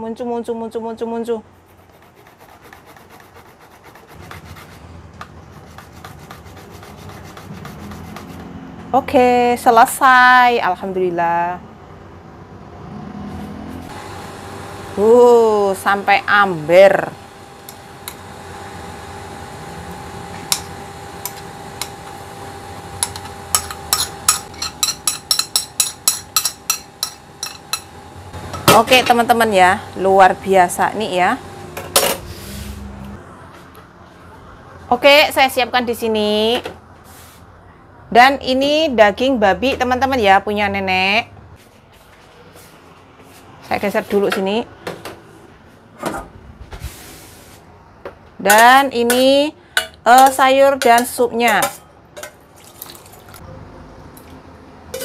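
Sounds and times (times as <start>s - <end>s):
tomato grating on metal grater: 1.7s - 4.9s, 5.5s - 8.5s
kitchen appliance hum: 12.8s - 35.2s
metal spoon scraping ceramic plate: 23.0s - 27.9s.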